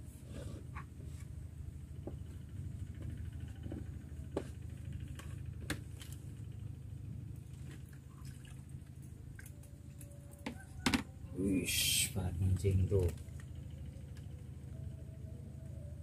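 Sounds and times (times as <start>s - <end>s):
steady low rumble: 0.0s - 16.0s.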